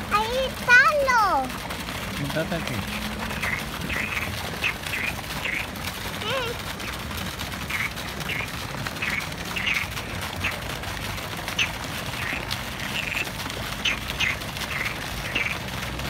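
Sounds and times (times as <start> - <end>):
frogs croaking: 2.8 - 5.8, 7.6 - 10.6, 11.5 - 15.6.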